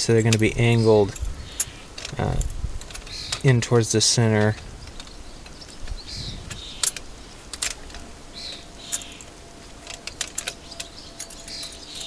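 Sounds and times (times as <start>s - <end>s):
horseshoes clinking on metal: 6.6s - 12.0s.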